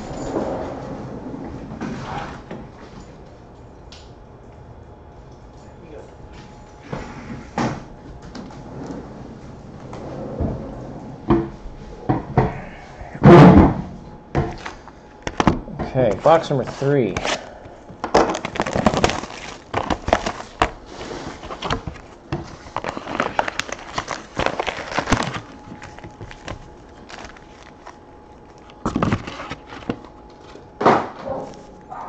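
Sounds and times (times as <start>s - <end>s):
foil packs crinkling: 16.0s - 30.7s.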